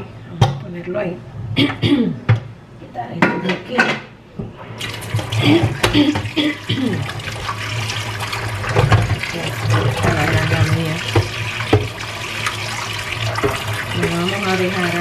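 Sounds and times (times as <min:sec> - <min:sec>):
tap water splashing: 0:04.8 - 0:15.0.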